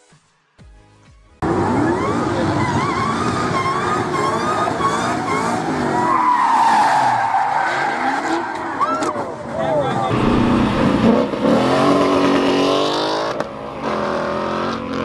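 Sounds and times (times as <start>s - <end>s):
high-revving car engine: 1.4s - 6.2s, 10.0s - 15.0s.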